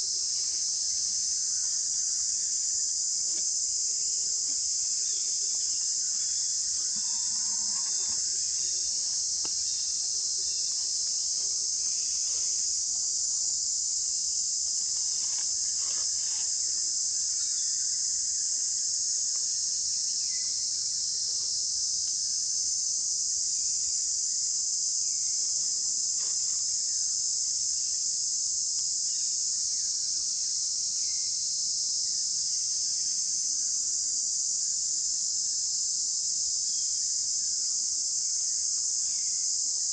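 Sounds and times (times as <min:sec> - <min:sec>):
insects buzzing: 0:00.0 - 0:39.9.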